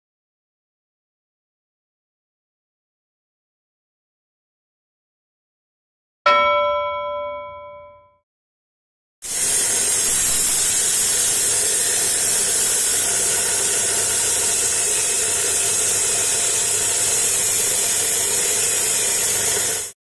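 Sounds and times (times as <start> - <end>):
disc cutter grinding concrete: 9.3 - 20.0.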